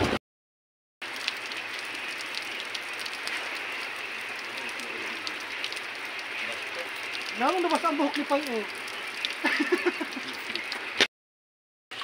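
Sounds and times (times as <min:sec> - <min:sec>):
rain falling on seawater: 0:01.0 - 0:11.0.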